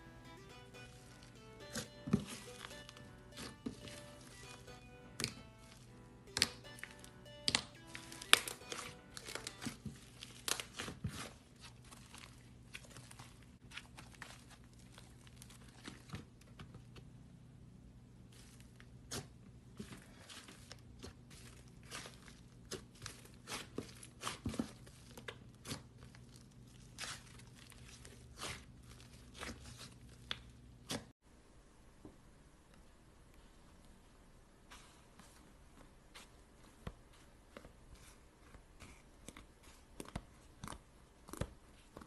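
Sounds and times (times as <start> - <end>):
sticky slime crackles and pops: 7.5 - 16.2.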